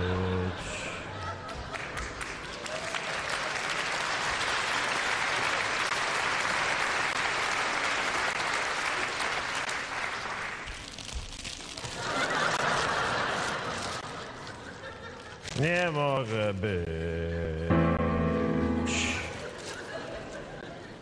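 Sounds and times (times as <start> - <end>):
audience applauding: 1.4 - 10.7.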